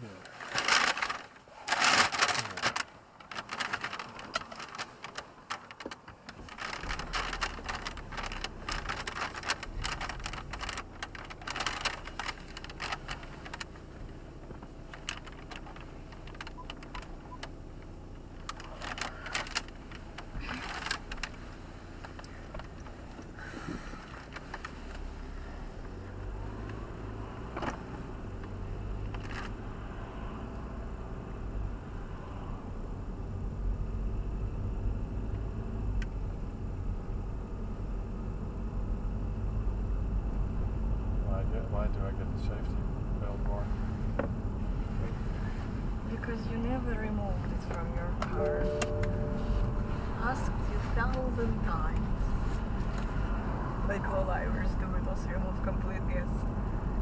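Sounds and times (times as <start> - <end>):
car engine rumbling: 0.0 - 57.0
clicks and rattles: 0.2 - 25.1, 25.8 - 29.6, 46.1 - 53.3.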